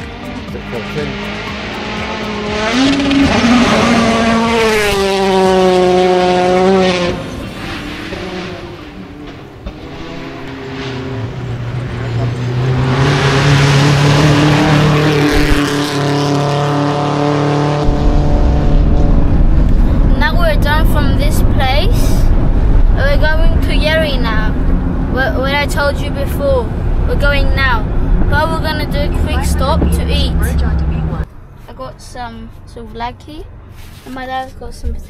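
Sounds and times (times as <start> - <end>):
rally car engine revving: 0.0 - 31.3
low rumble: 17.5 - 31.5.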